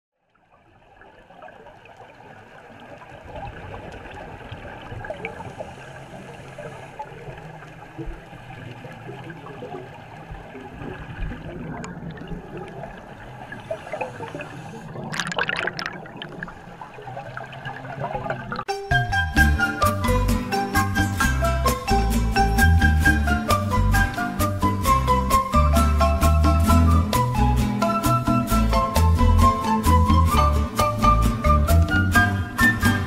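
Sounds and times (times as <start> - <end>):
water gurgling and trickling: 0.2 - 19.6
water splashing: 0.4 - 18.7.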